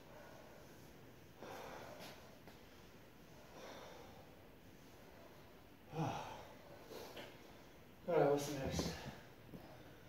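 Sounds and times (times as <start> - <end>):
man breathing hard: 0.0 - 2.4, 3.3 - 7.9.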